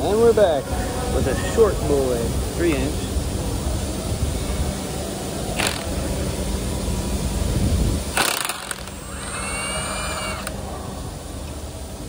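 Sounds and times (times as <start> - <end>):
impact wrench rumbling: 5.5 - 10.7
fastener cracking loose: 5.6 - 5.9, 8.1 - 10.6
motor whining: 5.6 - 6.0, 8.1 - 10.8.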